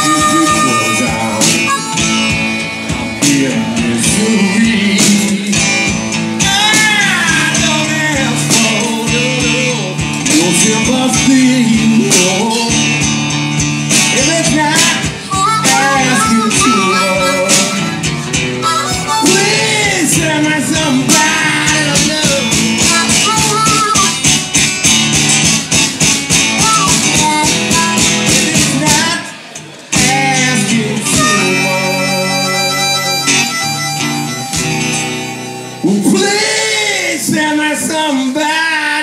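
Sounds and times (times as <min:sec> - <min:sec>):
harmonica solo: 0:00.0 - 0:03.2, 0:15.2 - 0:20.4, 0:22.3 - 0:24.5, 0:26.5 - 0:28.4, 0:31.0 - 0:36.4
strummed acoustic guitar: 0:00.0 - 0:38.0.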